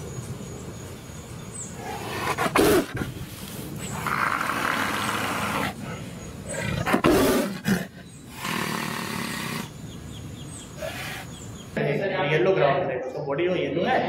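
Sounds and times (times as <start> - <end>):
tiger roaring: 1.8 - 3.2, 3.8 - 9.8, 10.8 - 11.4.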